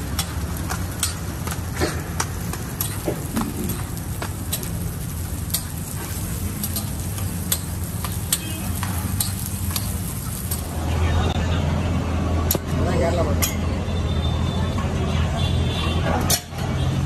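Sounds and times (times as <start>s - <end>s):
metal spatula clicking and scraping: 0.0s - 1.6s, 2.2s - 10.7s
flatbread sizzling on griddle: 0.0s - 11.2s.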